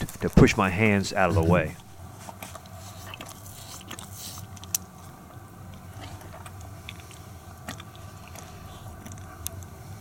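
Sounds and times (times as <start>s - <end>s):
cheetah licking: 2.2s - 9.7s.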